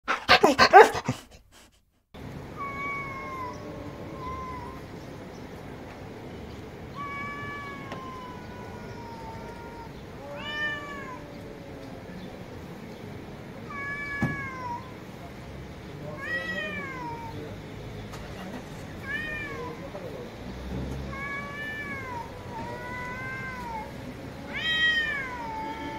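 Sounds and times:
cats yowling: 2.4s - 5.1s, 6.8s - 12.8s, 13.4s - 15.4s, 16.0s - 17.8s, 19.0s - 20.1s, 20.9s - 25.9s.

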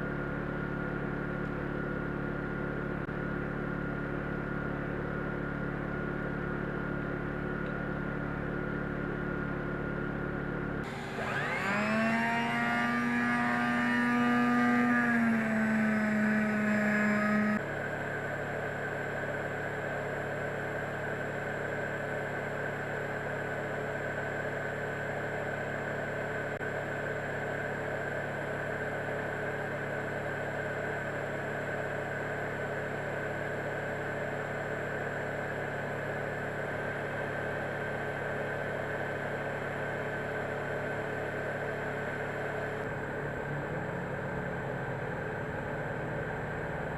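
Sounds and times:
steady hum: 0.0s - 19.7s
power drill motor spinning: 10.8s - 17.6s.

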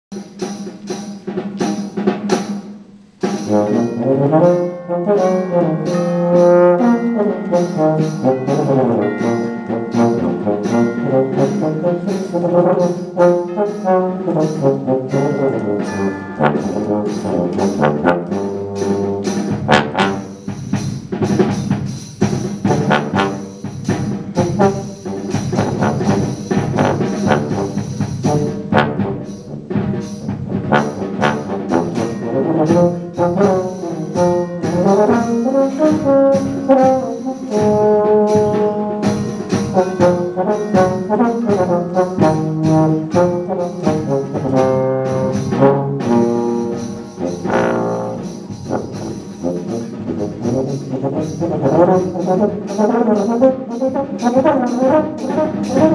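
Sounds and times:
concert band playing: 0.1s - 55.9s
percussion beat: 0.1s - 55.9s.

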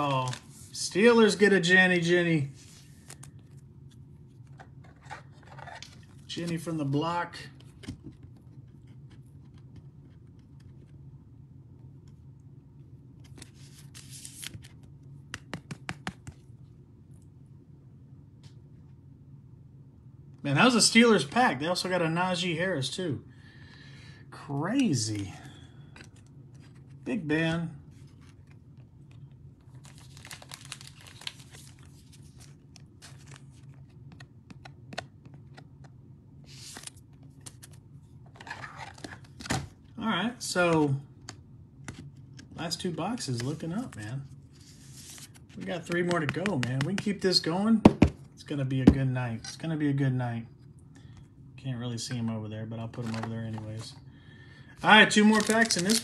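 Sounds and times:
cards sliding and rustling: 0.1s - 0.8s, 2.5s - 3.6s, 4.4s - 6.7s, 13.2s - 14.8s, 27.9s - 39.6s, 42.8s - 47.2s, 52.9s - 54.0s, 54.9s - 56.0s.

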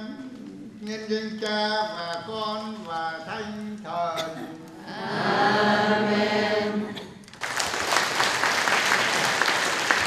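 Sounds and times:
congregation singing amen: 0.0s - 7.2s
applause: 7.3s - 10.0s.

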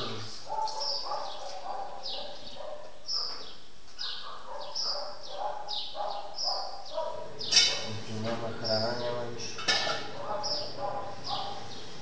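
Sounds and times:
dogs barking: 0.0s - 12.0s
dog yelping: 0.5s - 3.4s, 4.0s - 7.9s, 10.1s - 11.7s.

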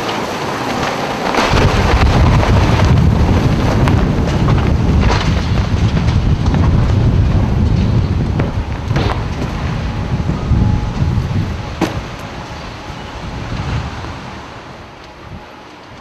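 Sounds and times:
debris cracks and clatters: 0.0s - 10.0s
wind hammering microphone: 0.0s - 16.0s.

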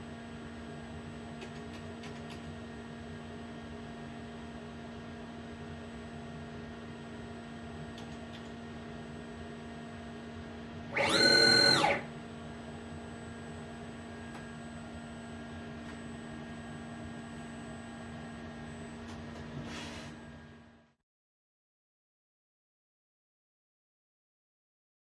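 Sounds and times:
steady electrical hum: 0.0s - 20.9s
lathe drive motor whining: 10.9s - 12.1s.

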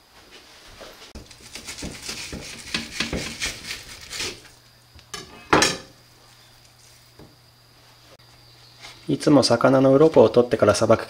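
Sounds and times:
knife clacking on board: 1.2s - 3.8s
knife slicing on cutting board: 1.2s - 4.5s.

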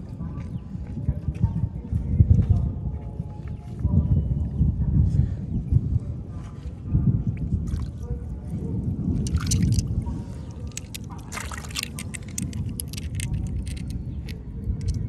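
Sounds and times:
steady low rumble: 4.7s - 15.0s
hand splashing in shallow water: 9.2s - 9.8s, 10.8s - 12.4s.

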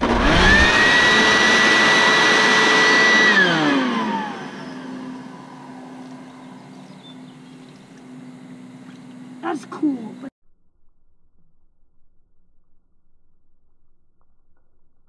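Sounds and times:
electric leaf blower whining: 0.0s - 9.4s.

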